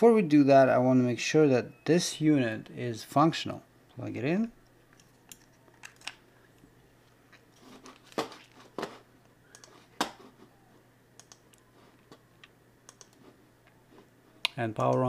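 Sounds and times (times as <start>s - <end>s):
hands clicking and tapping circuit board: 14.5s - 15.0s.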